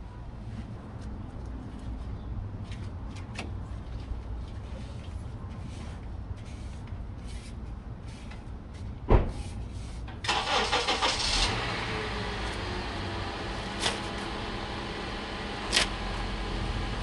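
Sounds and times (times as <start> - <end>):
car engine starting and idling: 10.2 - 17.0.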